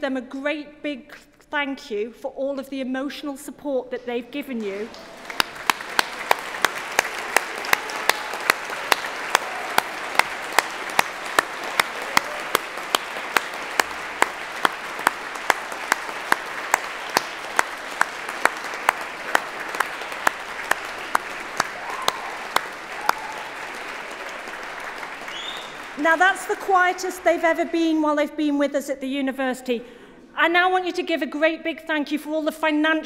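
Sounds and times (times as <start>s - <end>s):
audience applauding: 4.7s - 28.0s
loud evenly timed single claps: 4.9s - 27.6s.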